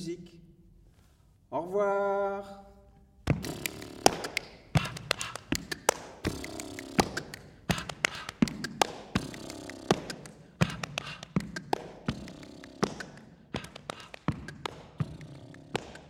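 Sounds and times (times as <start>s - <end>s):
slaps on the body: 3.2s - 16.0s
feet stamping: 3.3s - 16.0s
hand claps: 3.3s - 16.0s.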